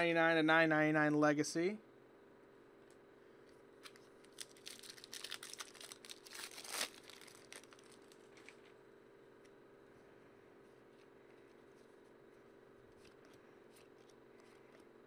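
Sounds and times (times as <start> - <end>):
plastic wrapper crinkling and tearing: 3.8 - 8.7
handling of cards: 3.8 - 8.8, 10.7 - 15.0.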